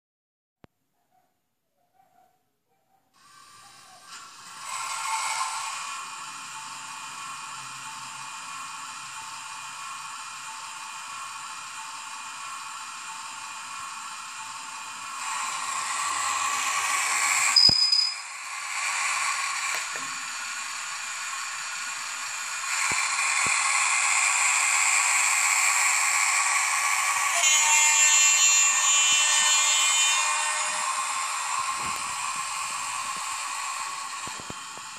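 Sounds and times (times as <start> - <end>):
diesel engine sound from small speaker: 5.6 - 27.9
brief high tone: 17.6 - 18.3.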